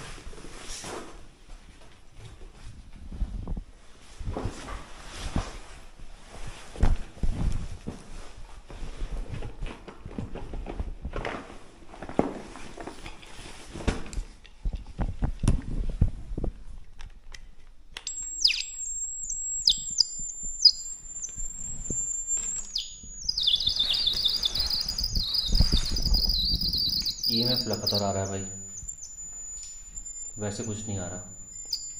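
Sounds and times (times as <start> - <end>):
high-pitched electronic whine: 18.1 - 31.9.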